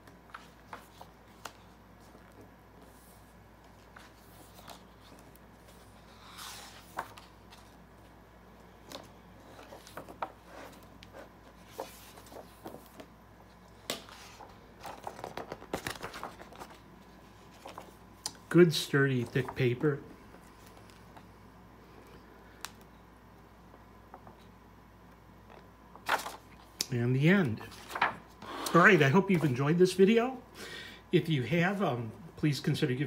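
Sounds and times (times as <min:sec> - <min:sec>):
book pages turning: 0:00.0 - 0:18.5, 0:25.4 - 0:26.9, 0:27.6 - 0:28.4.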